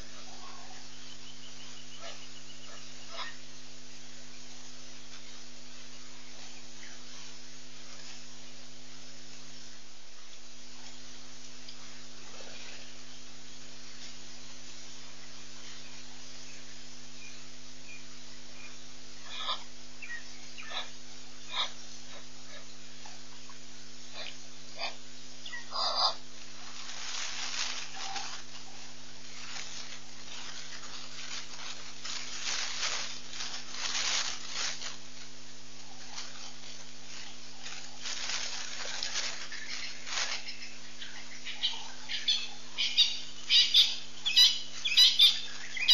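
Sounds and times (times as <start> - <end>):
electrical hum: 0.0 - 45.9
microphone hiss: 0.0 - 45.9.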